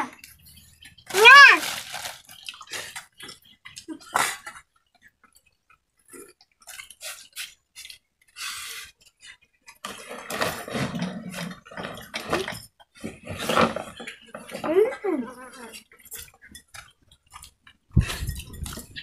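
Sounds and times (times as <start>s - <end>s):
chewing: 1.7s - 9.8s, 15.3s - 19.0s.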